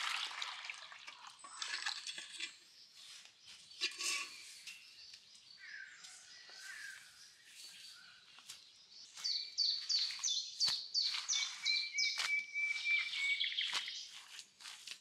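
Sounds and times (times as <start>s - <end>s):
songbird singing whistled notes: 8.8s - 14.2s.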